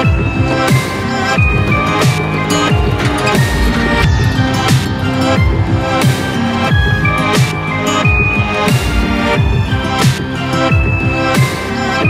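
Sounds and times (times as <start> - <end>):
held synth notes: 0.0 - 12.0
deep bass drum beat: 1.4 - 10.2.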